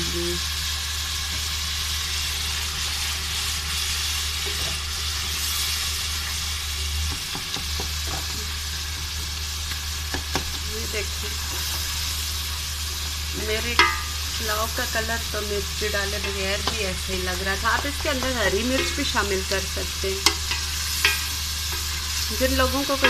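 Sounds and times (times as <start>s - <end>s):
food sizzling in oil: 0.0s - 23.0s
wooden spoon knocking on pot: 13.7s - 14.1s, 16.2s - 16.8s.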